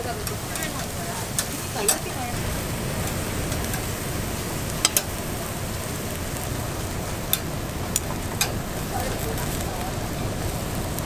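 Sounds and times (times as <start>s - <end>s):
ribs sizzling on grill: 0.0s - 11.0s.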